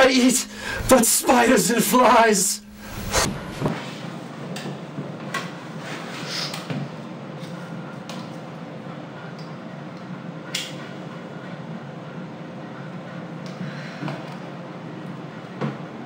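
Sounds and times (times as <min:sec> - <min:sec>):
steady low hum: 0:00.0 - 0:04.5.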